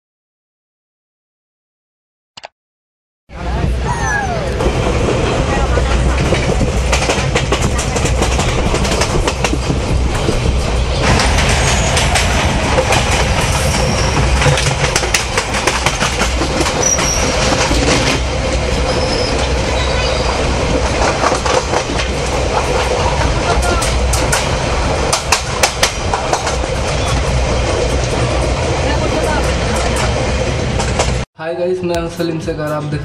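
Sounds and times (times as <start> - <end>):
passing train alongside: 3.3 - 33.0
train rumbling on rails: 3.3 - 33.0
high wheel squeals: 11.5 - 12.2, 13.5 - 14.5, 16.8 - 17.6, 18.8 - 20.6.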